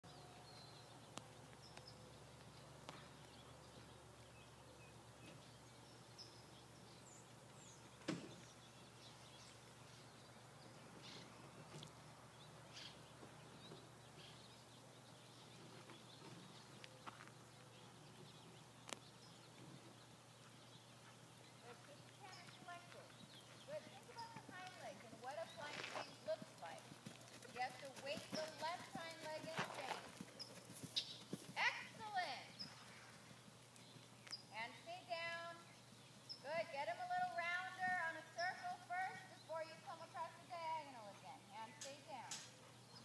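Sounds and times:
faint background hiss: 0.1s - 43.0s.

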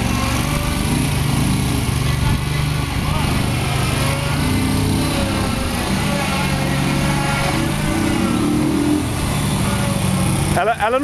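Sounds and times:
go-kart engine: 0.0s - 11.0s
quad bike engine: 0.0s - 11.0s.

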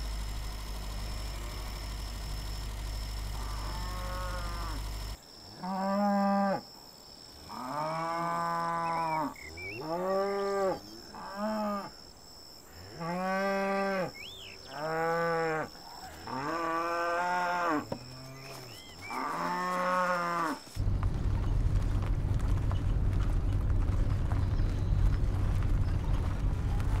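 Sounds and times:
cattle mooing: 3.3s - 4.8s, 14.7s - 20.6s.

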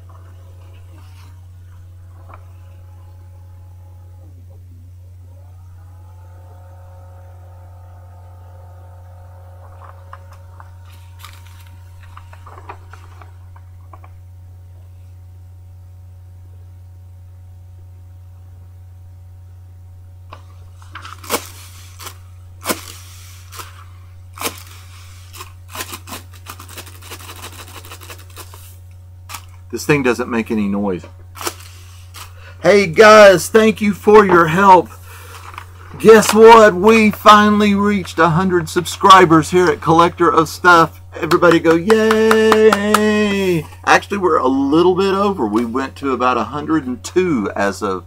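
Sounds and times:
low electrical hum: 0.0s - 48.0s
paper crinkling and rustling: 9.6s - 14.2s, 20.4s - 23.8s, 24.4s - 29.6s, 31.4s - 32.4s, 35.2s - 36.4s.

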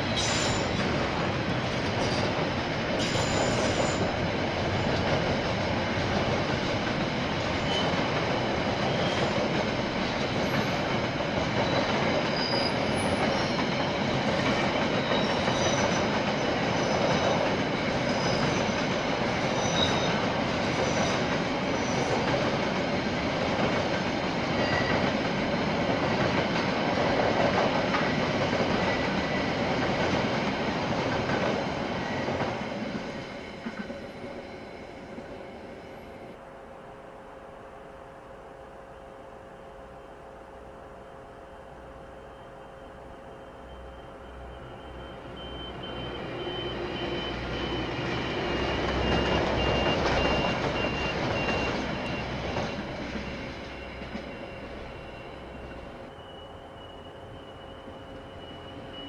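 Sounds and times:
railway wagons rumbling past: 0.0s - 59.0s
high-pitched wheel squeal: 0.1s - 0.9s, 3.0s - 4.1s, 7.6s - 8.0s, 11.7s - 13.7s, 19.5s - 20.2s, 42.3s - 59.0s.

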